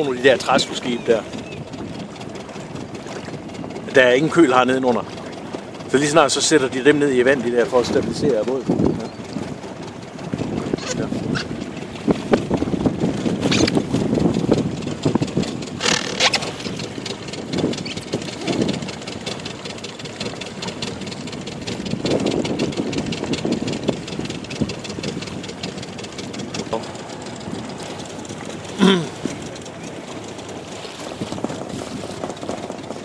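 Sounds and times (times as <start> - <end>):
outboard motor chugging: 0.0 - 33.0.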